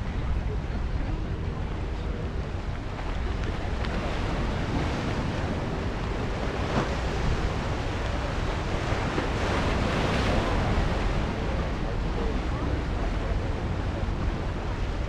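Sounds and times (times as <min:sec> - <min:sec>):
wind buffeting microphone: 0:00.0 - 0:15.0
ocean surf washing onto rocks: 0:02.3 - 0:15.0.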